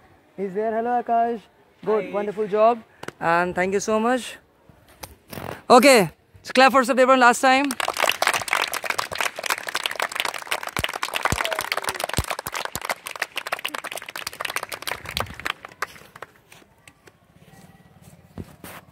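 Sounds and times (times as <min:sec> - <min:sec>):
people clapping: 0:07.4 - 0:17.2.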